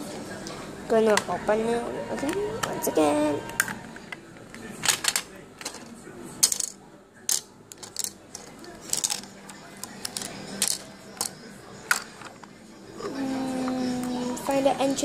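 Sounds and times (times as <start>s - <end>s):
plastic toy pieces clicking: 4.8s - 12.1s.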